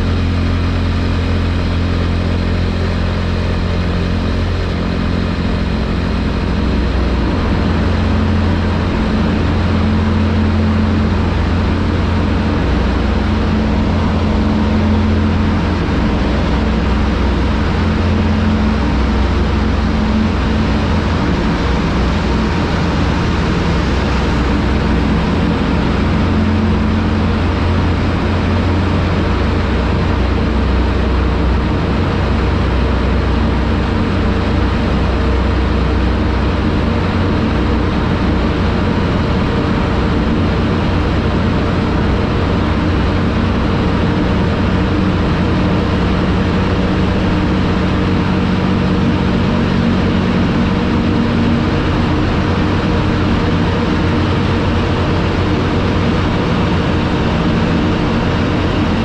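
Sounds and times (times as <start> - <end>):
road noise: 0.0 - 59.0
rushing wind: 0.0 - 59.0.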